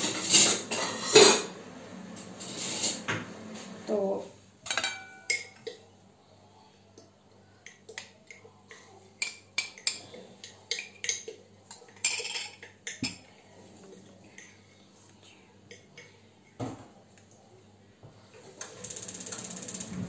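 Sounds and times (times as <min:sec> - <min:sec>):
metal spoon clinking on glass: 0:04.7 - 0:05.6.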